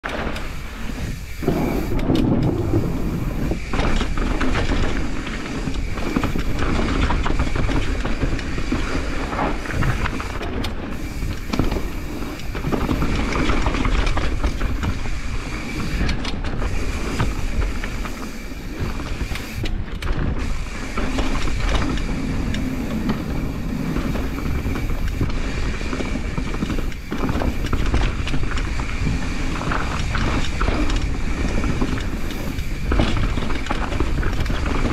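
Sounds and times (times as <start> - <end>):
mountain bike rattling: 0.0 - 34.9
low rumble: 1.4 - 7.8.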